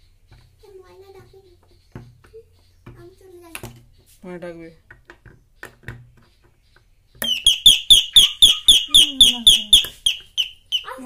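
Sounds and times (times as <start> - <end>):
electronic doorbell chirping: 7.3 - 11.0.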